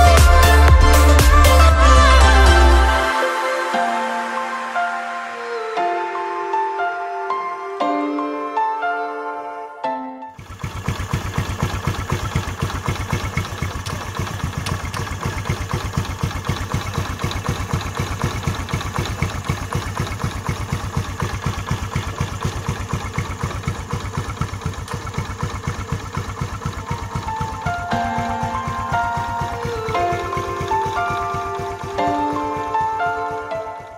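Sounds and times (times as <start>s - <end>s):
scooter engine idling: 0.0s - 2.9s, 10.4s - 33.9s.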